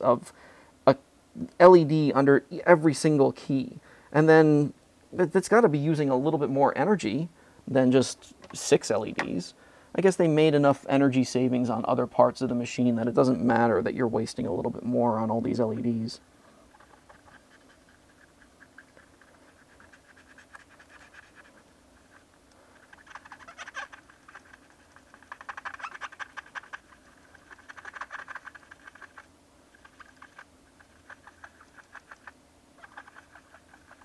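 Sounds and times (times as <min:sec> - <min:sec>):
cotton swab scratching keyboard: 0:16.7 - 0:34.0.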